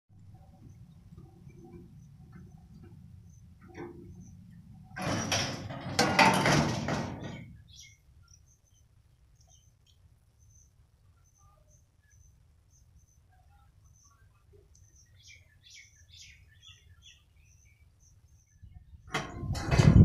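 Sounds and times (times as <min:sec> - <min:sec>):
barrier rattling and scraping: 0:01.3 - 0:07.6, 0:19.1 - 0:20.0
faint bird chirps: 0:07.6 - 0:19.1.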